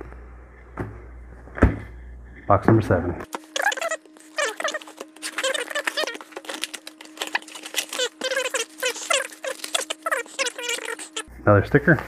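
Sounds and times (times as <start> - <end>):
faint steady hum: 0.0 - 12.0
packaging crinkling: 3.3 - 11.3.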